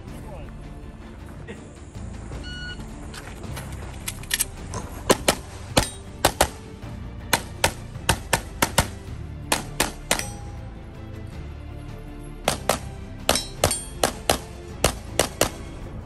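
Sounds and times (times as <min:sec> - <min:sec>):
background music: 0:00.0 - 0:16.0
rapid pistol fire: 0:07.3 - 0:10.3, 0:12.5 - 0:15.7.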